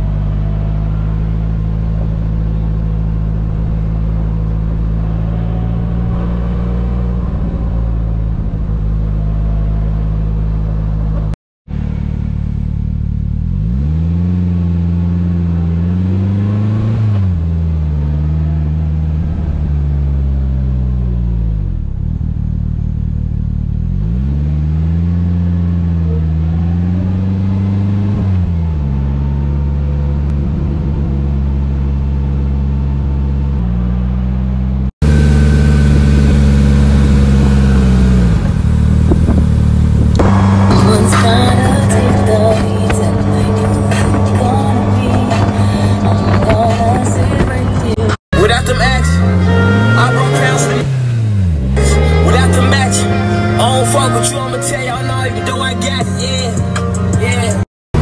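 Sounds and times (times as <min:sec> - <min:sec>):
engine accelerating through gears: 0:00.0 - 0:58.0.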